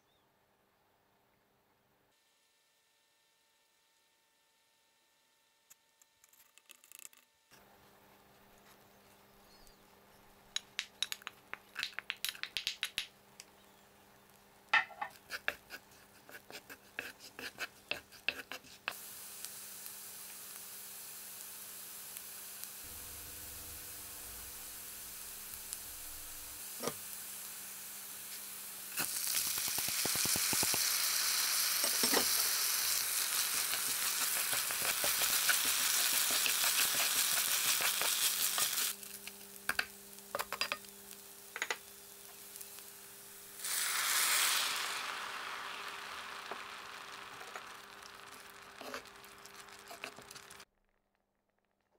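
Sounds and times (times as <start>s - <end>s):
wooden spatula clicks: 10.6s - 13.1s
rice sizzling in hot fat: 14.1s - 50.7s
garlic sizzling in pan: 14.2s - 50.7s.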